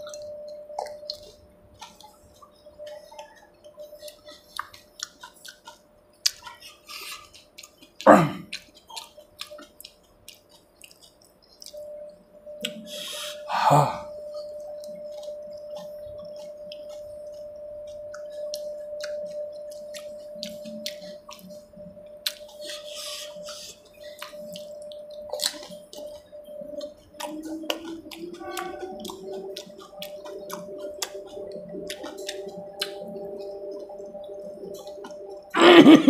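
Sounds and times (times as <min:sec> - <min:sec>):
wet chewing: 0:00.0 - 0:35.5
loud mouth sounds: 0:08.0 - 0:09.7, 0:12.6 - 0:14.5, 0:34.7 - 0:36.0.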